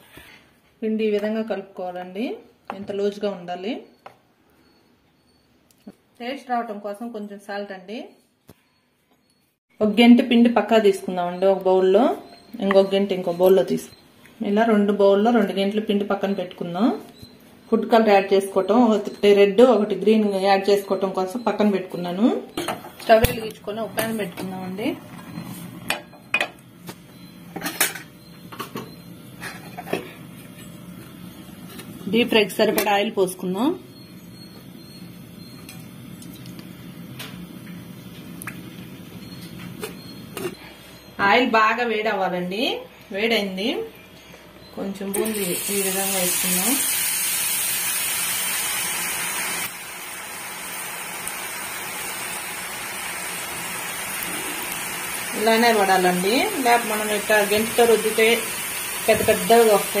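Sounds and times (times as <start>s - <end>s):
batter sizzling in hot oil: 45.2s - 60.0s.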